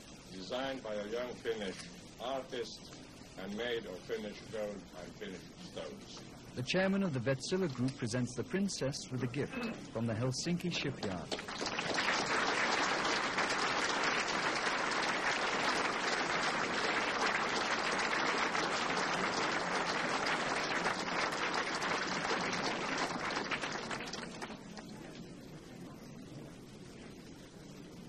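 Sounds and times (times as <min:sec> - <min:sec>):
crowd applauding: 0:11.0 - 0:24.9.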